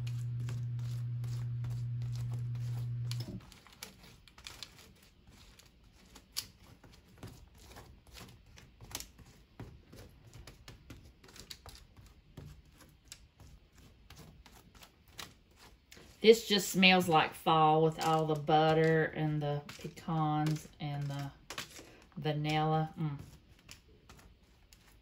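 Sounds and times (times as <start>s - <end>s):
low electrical hum: 0.0s - 6.3s, 15.0s - 25.0s
foil crinkle: 0.0s - 25.0s.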